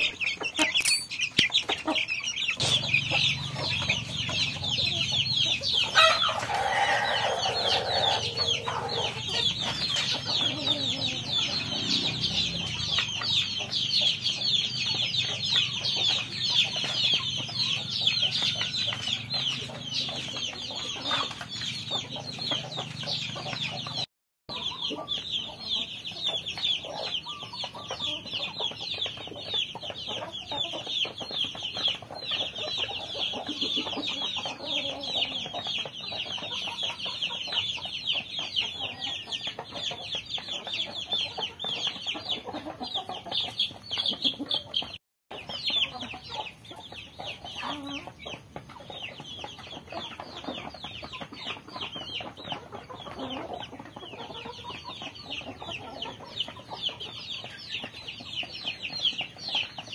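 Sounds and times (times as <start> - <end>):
chicks peeping: 0.0 - 59.9
hens clucking: 0.0 - 59.9
rooster crowing: 6.0 - 8.3.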